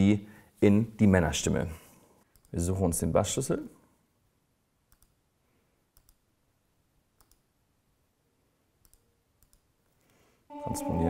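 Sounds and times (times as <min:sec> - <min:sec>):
computer mouse clicks: 0:02.3 - 0:02.6, 0:04.9 - 0:05.2, 0:05.9 - 0:06.3, 0:07.2 - 0:07.5, 0:08.8 - 0:09.7.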